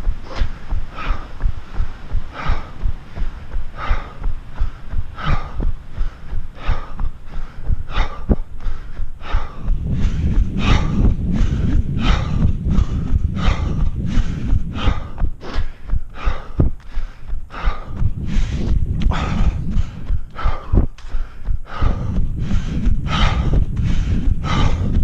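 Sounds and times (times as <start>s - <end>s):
low rumble: 0.0s - 25.0s
runner breathing hard: 0.0s - 25.0s.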